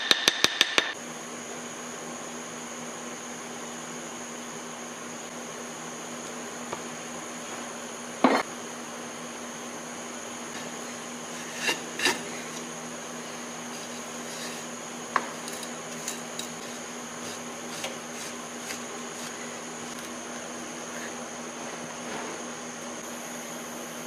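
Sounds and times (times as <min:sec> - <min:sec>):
steady hum: 0:02.9 - 0:24.0.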